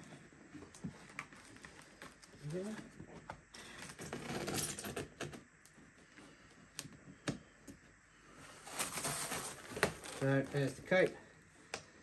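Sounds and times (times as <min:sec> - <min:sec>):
packaging rustling: 0:08.4 - 0:11.2.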